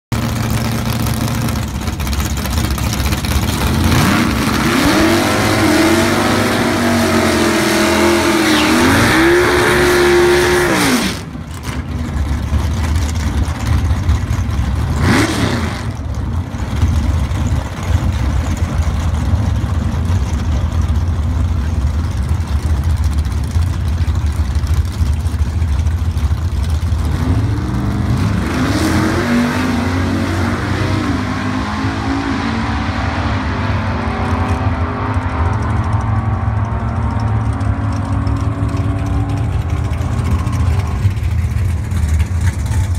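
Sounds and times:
drag car engine revving: 0.1 - 42.9.

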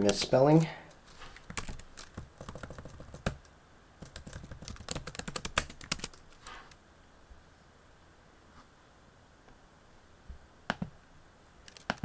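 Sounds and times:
computer keyboard typing: 1.4 - 6.3, 11.6 - 12.0.

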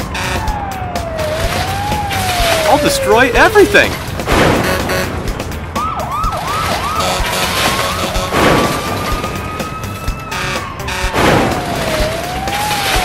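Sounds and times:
cartoon siren: 0.0 - 3.9, 5.8 - 13.0
concrete breaking crashes: 7.4 - 9.7, 11.1 - 13.0.

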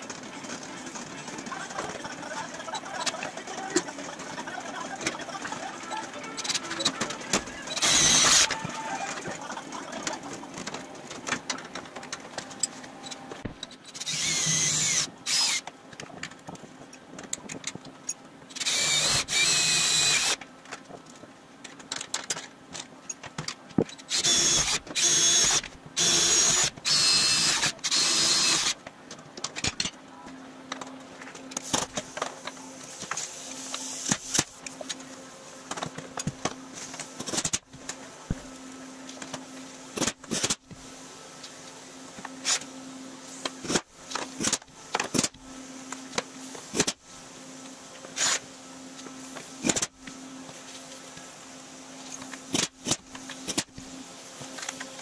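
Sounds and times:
cordless drill drilling metal: 7.8 - 8.5, 13.9 - 15.6, 18.6 - 20.4, 24.1 - 28.8.

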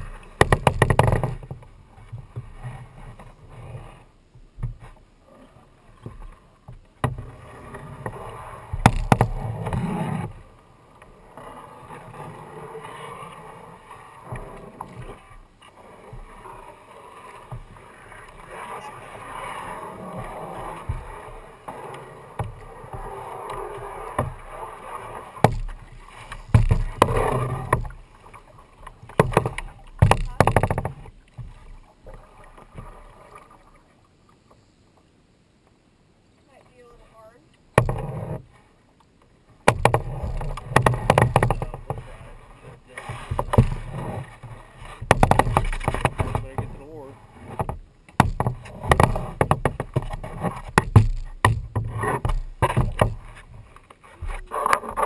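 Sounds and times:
paddle knocking on plastic hull: 0.0 - 2.6, 8.7 - 10.3, 17.4 - 17.8, 20.0 - 21.4, 22.3 - 33.0, 37.7 - 38.4, 39.6 - 55.0
paddle splashing in water: 0.0 - 35.7, 36.4 - 55.0.

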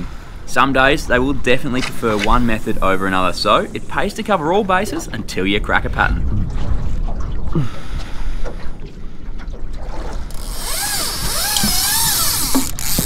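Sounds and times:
water noise: 0.0 - 13.0
wind: 0.0 - 13.0
fishing reel whining: 10.3 - 13.0.

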